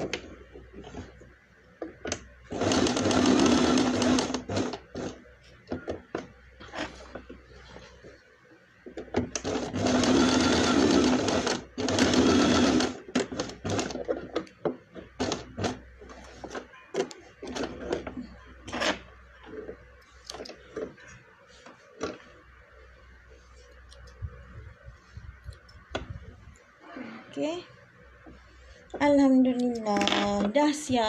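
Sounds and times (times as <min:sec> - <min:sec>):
sewing machine stitching: 0:02.5 - 0:05.2, 0:09.2 - 0:14.3, 0:15.1 - 0:15.8.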